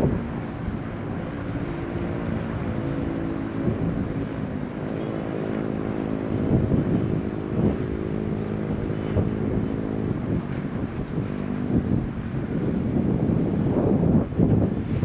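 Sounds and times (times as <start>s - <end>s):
jet engines humming: 0.0s - 15.0s
wind buffeting microphone: 0.0s - 15.0s.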